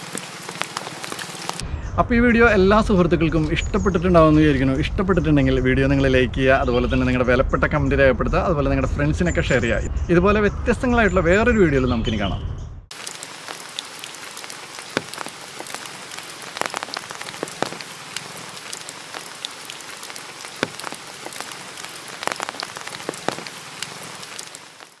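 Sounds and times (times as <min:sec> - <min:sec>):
raindrops ticking close by: 0:00.0 - 0:01.6, 0:12.9 - 0:25.0
steady rain falling: 0:00.0 - 0:01.6, 0:12.9 - 0:25.0.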